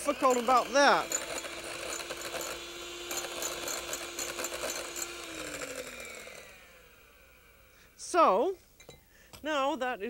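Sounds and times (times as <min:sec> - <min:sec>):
electric mixer whipping in bowl: 0:00.0 - 0:07.7
mixer motor winding down: 0:00.0 - 0:08.1.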